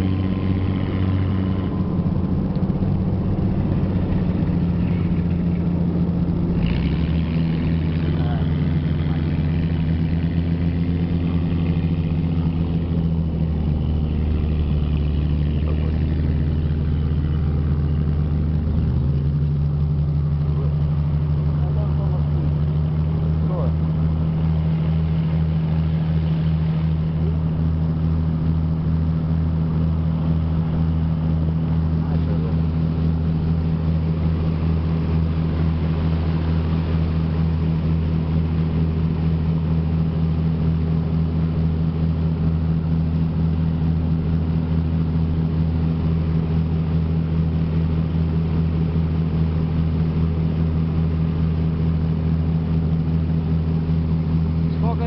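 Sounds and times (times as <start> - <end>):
boat engine droning: 0.0 - 55.0
water rushing along hull: 0.0 - 55.0.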